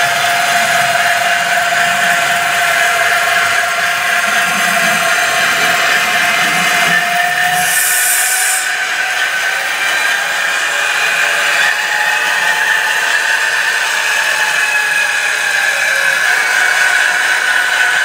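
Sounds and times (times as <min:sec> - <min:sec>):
diesel engine drone: 0:00.0 - 0:17.9
steady whining tone: 0:00.0 - 0:18.0.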